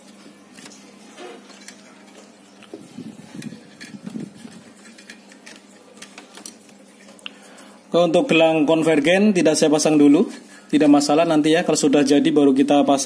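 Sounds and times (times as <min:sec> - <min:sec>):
small clicks and rubbing: 0:00.5 - 0:07.3.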